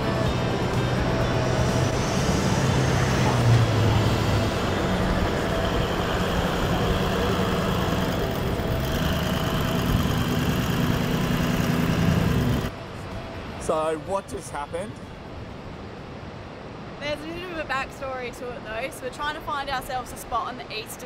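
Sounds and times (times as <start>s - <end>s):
vehicle engine humming: 0.0s - 13.6s.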